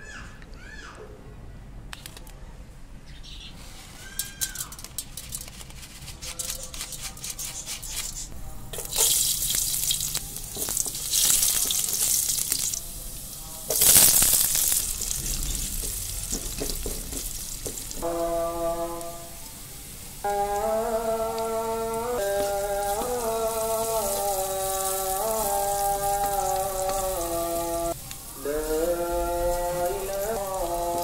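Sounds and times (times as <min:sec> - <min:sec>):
hot oil crackling: 0:04.0 - 0:31.0
onions sizzling in a pan: 0:07.8 - 0:31.0.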